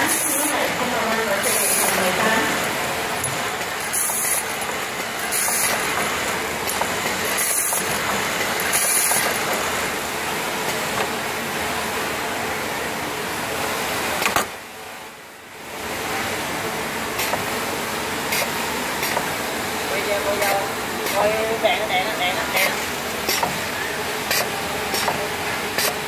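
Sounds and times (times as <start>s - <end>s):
machine whirring: 0.0s - 12.0s, 15.7s - 26.0s.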